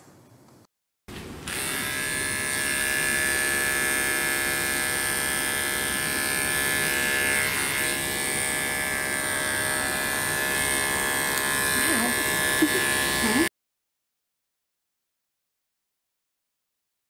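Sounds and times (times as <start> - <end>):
electric clippers buzzing: 1.4 - 13.5.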